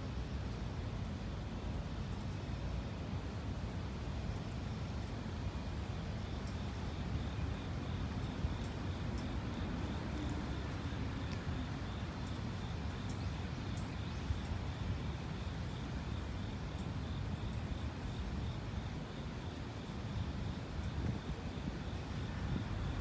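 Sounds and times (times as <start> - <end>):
faint ticks: 6.2 - 14.8.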